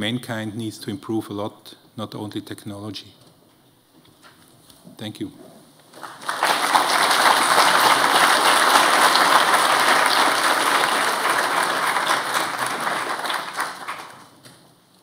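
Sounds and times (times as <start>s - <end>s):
audience applauding: 5.9s - 14.5s.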